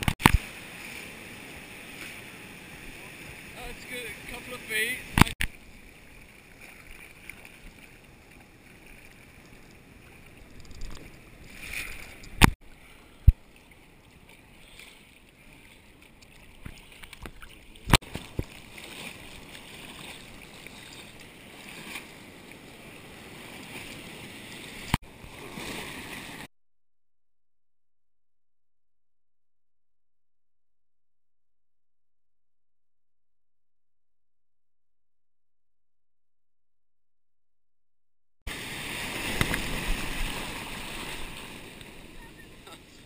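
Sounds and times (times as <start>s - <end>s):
sea water sloshing and splashing: 5.1s - 26.5s, 38.5s - 43.0s.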